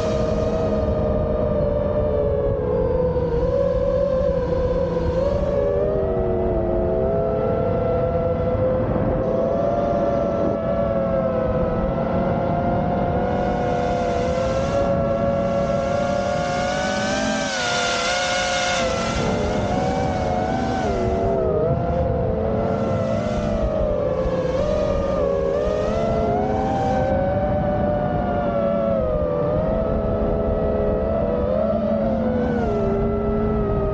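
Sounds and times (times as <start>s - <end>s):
drone motors whining: 0.0s - 33.9s
propeller wash rush: 14.0s - 21.4s.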